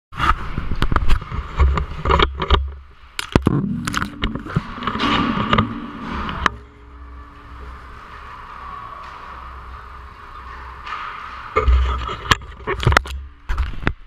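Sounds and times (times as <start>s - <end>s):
low rumble: 3.4s - 13.5s.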